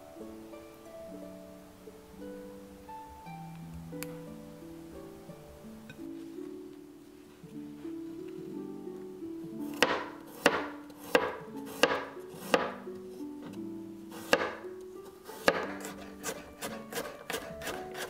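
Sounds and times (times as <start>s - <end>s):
knife striking cutting board: 9.8s - 12.8s, 14.2s - 14.6s, 15.4s - 18.0s.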